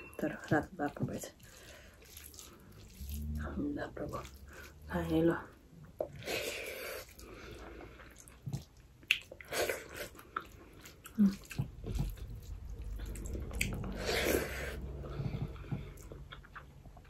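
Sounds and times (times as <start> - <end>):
fingers squishing rice: 1.5 - 3.4.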